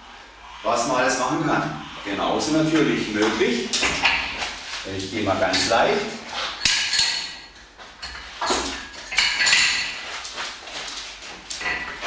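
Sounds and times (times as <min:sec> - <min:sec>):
metal clanks and clicks: 0:06.6 - 0:10.1, 0:10.9 - 0:12.0.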